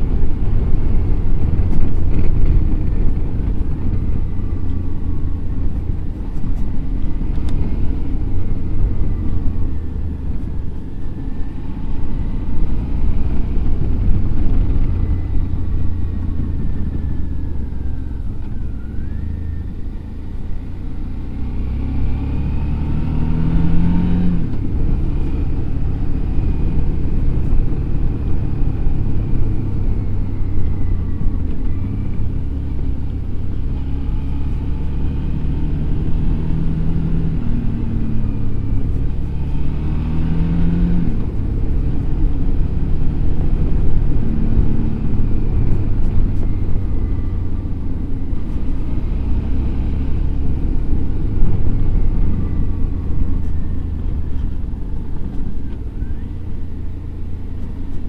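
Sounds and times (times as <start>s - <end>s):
motorcycle engine revving: 21.2s - 56.2s.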